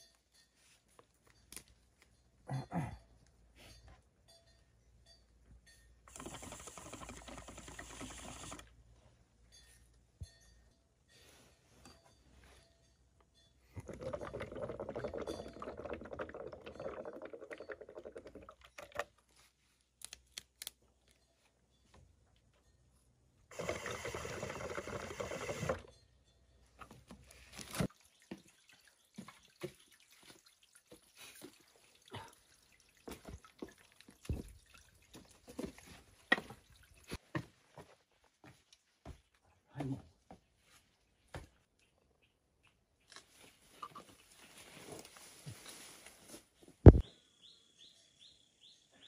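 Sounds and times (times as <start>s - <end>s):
water pipe bubbling: 13.8s - 19.1s
rustling: 43.1s - 46.8s.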